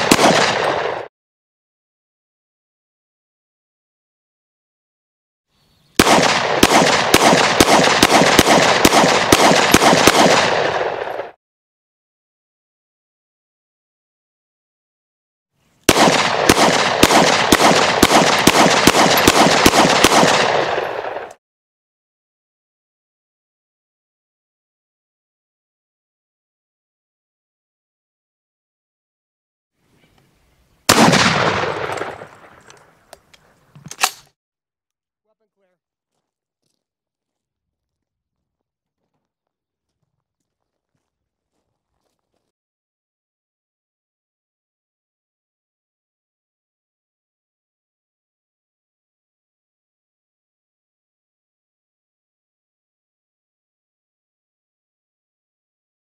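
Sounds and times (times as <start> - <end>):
pistol shots with echo: 0.0 - 1.1, 6.0 - 11.4, 15.9 - 21.3, 30.9 - 32.7.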